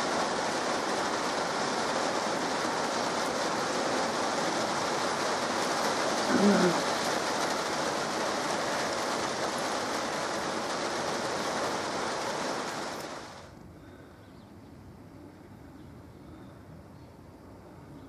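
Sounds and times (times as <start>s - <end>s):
steady rain falling: 0.0s - 14.0s
faint steady hiss: 0.0s - 18.0s.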